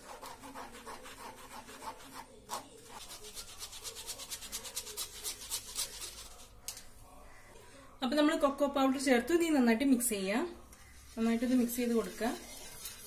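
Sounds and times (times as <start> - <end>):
spoon scraping powder through sieve: 0.0 - 6.6, 10.8 - 13.0.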